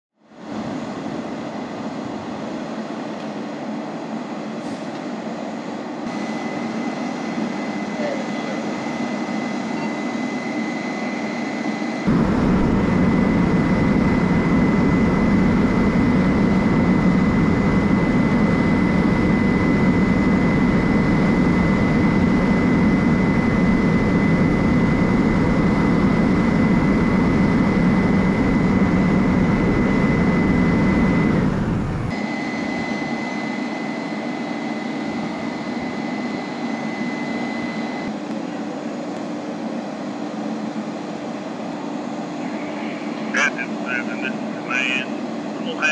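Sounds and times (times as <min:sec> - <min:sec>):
thin high whine: 0:06.1 - 0:38.1, 0:42.0 - 0:45.9
diesel truck engine running: 0:12.1 - 0:32.1.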